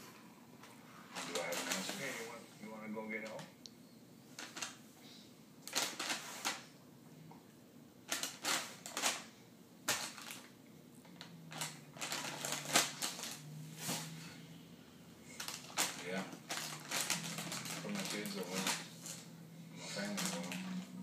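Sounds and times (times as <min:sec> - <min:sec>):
tissues and box rustling: 0:00.6 - 0:02.4, 0:11.1 - 0:14.3, 0:15.3 - 0:21.0.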